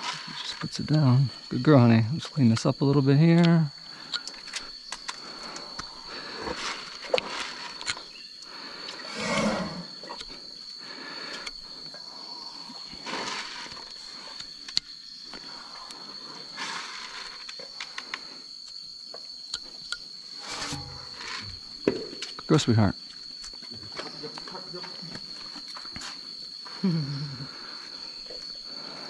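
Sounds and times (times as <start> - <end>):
elephant low call: 9.0 - 10.2
hoof knife scraping: 20.4 - 21.6.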